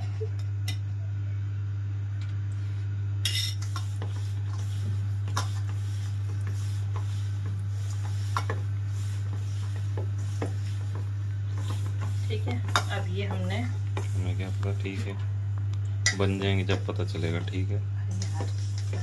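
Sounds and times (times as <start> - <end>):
steady low hum: 0.0 - 19.0
hands mixing dough: 3.6 - 19.0.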